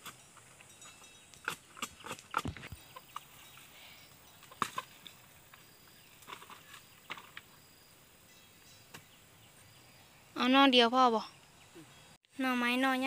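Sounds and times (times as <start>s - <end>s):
bamboo canes knocking together: 4.4s - 7.5s.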